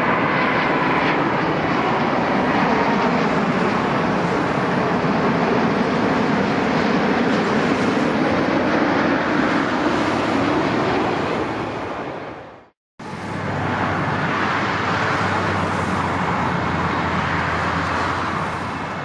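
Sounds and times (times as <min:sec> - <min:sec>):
airport noise: 0:00.0 - 0:19.0
rushing jet engine noise: 0:00.0 - 0:19.0
low engine hum: 0:13.0 - 0:19.0.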